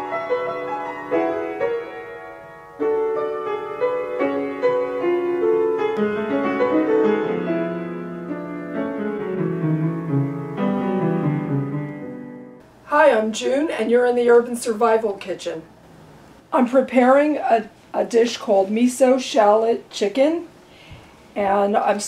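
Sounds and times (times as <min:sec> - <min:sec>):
piano theme music: 0:00.0 - 0:12.6.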